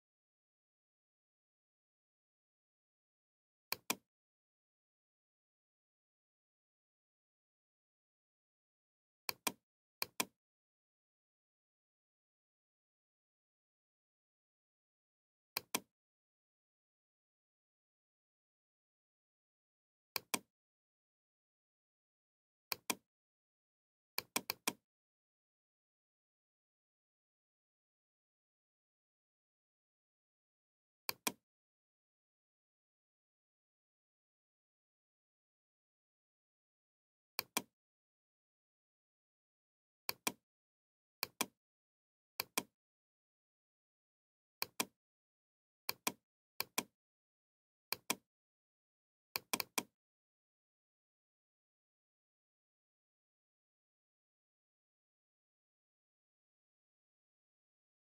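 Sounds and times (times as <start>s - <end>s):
computer mouse clicks: 3.7s - 4.0s, 15.6s - 15.9s, 24.2s - 24.8s, 31.1s - 31.4s, 40.1s - 40.4s, 45.9s - 46.9s, 47.9s - 48.2s, 49.4s - 49.9s
computer mouse clicking: 24.3s - 24.8s, 47.9s - 48.2s.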